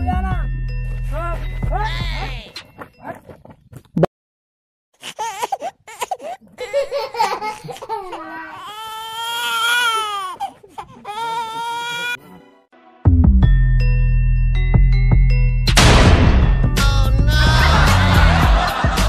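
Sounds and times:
high-pitched crying: 0:01.7 - 0:02.6, 0:05.0 - 0:12.2.

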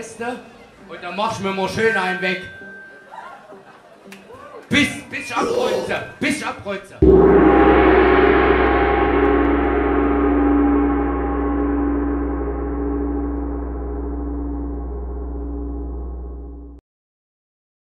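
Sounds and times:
deep low note: 0:07.0 - 0:16.8
punk band final chord ringing: 0:07.0 - 0:16.8.

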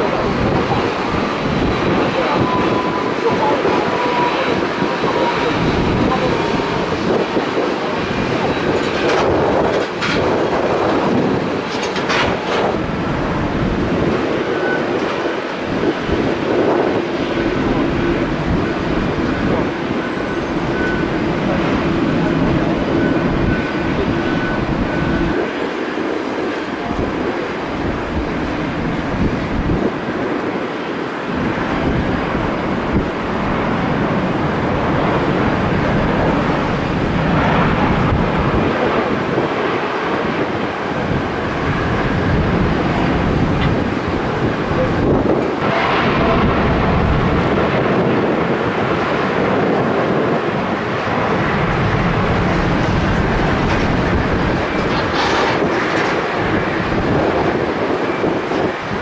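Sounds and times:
jet engine roaring: 0:00.0 - 0:59.0
wind buffeting microphone: 0:00.0 - 0:59.0.

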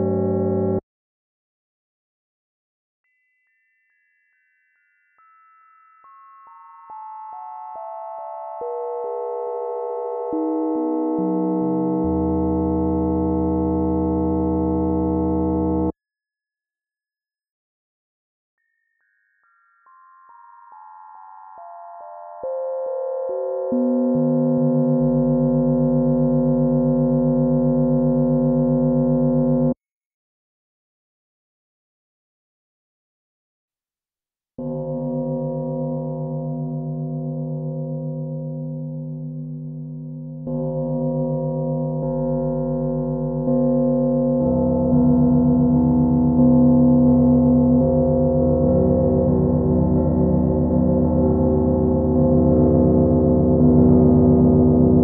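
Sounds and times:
pure sine tones: 0:07.8 - 0:16.0, 0:22.4 - 0:29.8, 0:34.6 - 0:55.0
chord-like bell tone: 0:19.0 - 0:29.8, 0:34.6 - 0:55.0.

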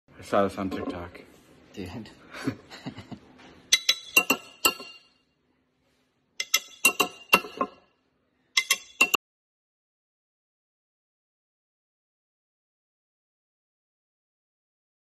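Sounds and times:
glass bottle clinking: 0:03.7 - 0:05.2, 0:06.4 - 0:07.9, 0:08.6 - 0:09.2.

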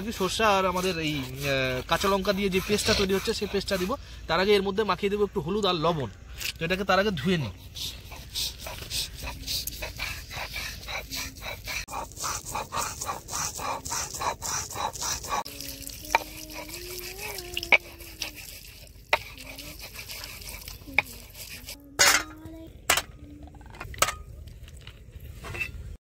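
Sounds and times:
hands rubbing fish in water: 0:07.9 - 0:21.8.

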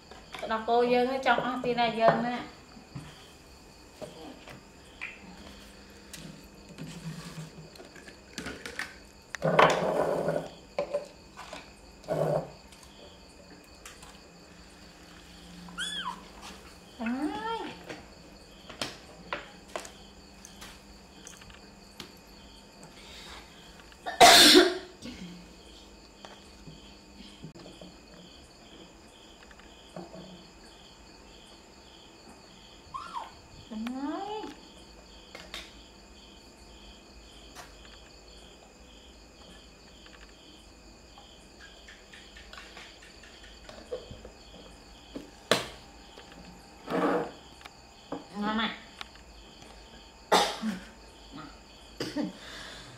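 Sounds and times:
cricket chirping: 0:00.0 - 0:52.9
loud cough: 0:24.1 - 0:25.3, 0:50.3 - 0:51.0, 0:52.0 - 0:52.4.

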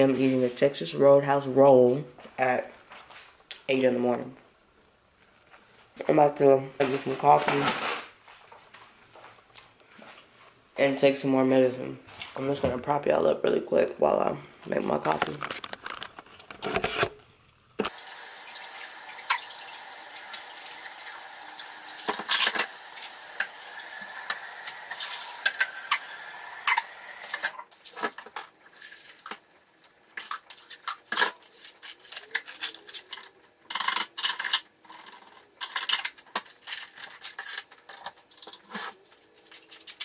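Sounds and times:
water running from tap: 0:17.9 - 0:27.5.

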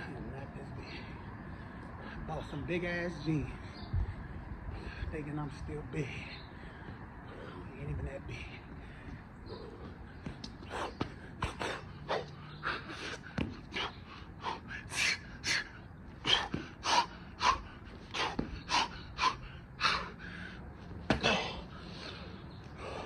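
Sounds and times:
man breathing hard and gasping: 0:08.6 - 0:23.0.

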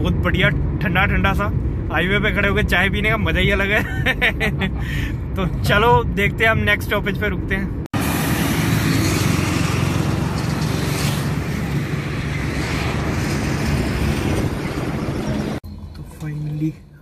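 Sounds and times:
highway traffic passing: 0:07.6 - 0:17.0.

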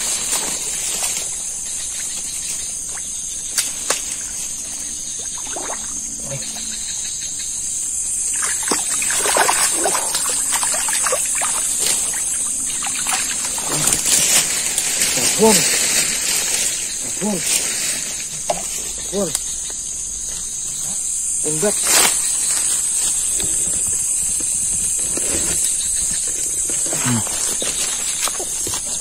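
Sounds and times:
night insects chorus: 0:00.0 - 0:29.0
water splashing and trickling: 0:02.0 - 0:06.9, 0:08.1 - 0:18.7.

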